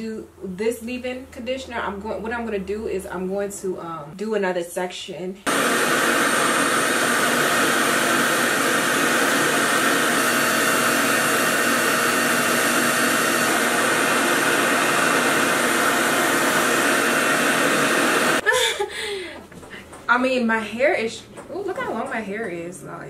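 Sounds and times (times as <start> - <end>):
hair dryer air rush: 5.5 - 18.4.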